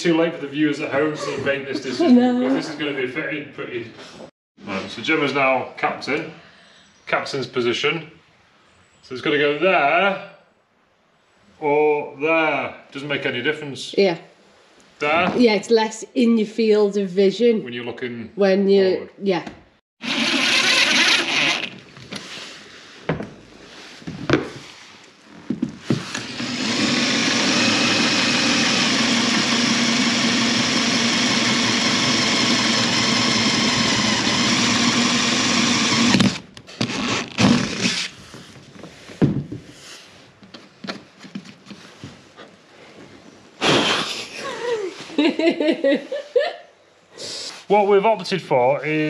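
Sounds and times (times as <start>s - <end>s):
power drill boring through deck: 20.0s - 21.8s, 26.0s - 38.1s.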